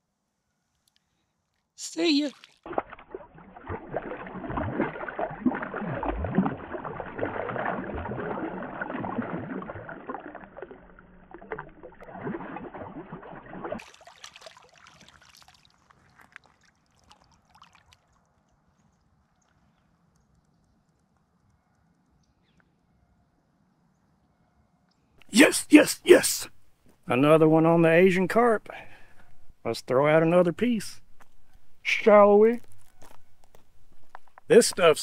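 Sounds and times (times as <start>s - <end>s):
faint water lapping: 2.0s - 20.9s
fish splashing in water: 2.2s - 20.4s.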